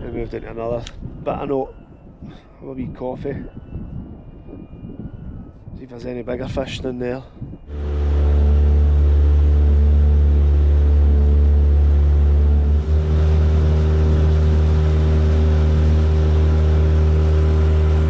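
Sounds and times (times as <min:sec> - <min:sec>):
outboard motor droning: 0:07.7 - 0:18.0.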